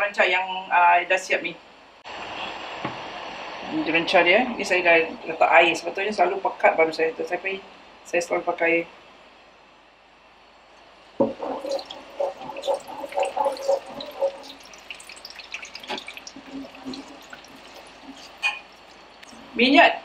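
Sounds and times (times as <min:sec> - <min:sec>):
metal ladle scraping a pan: 0:11.3 - 0:19.0
paste sizzling in hot oil: 0:11.4 - 0:19.5.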